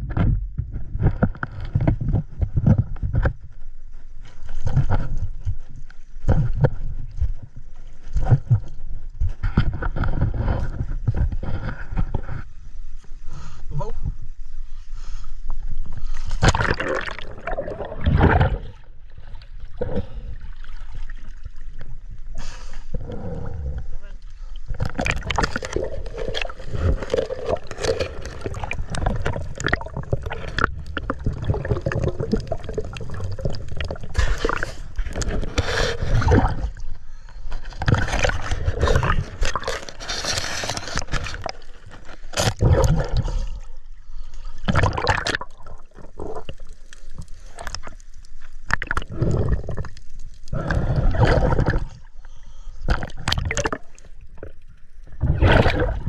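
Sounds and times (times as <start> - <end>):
underwater gurgling and bubbling: 16.0 - 56.0.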